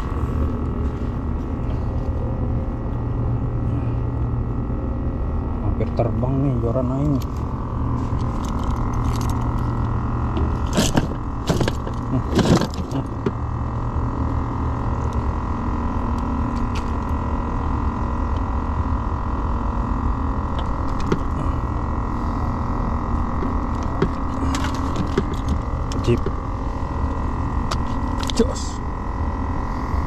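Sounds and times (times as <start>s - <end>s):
mechanical hum: 0.0s - 30.0s
scraping handling noises: 10.4s - 13.3s, 23.4s - 26.4s.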